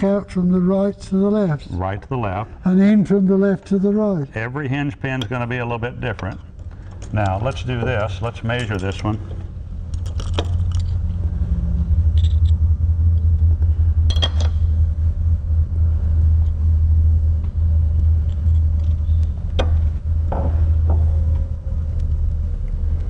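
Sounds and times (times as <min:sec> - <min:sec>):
steady low hum: 0:00.0 - 0:23.0
small metal parts clicking: 0:09.9 - 0:11.1, 0:12.1 - 0:12.6, 0:14.1 - 0:14.6.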